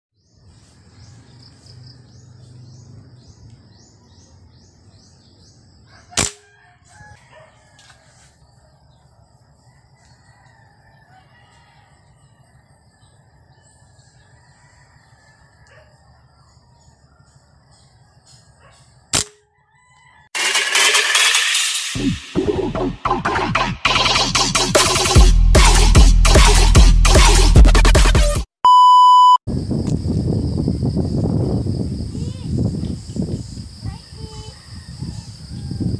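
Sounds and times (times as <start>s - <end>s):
birds chirping: 0.2s - 6.2s
air rifle shots: 6.2s - 6.5s, 19.1s - 19.4s.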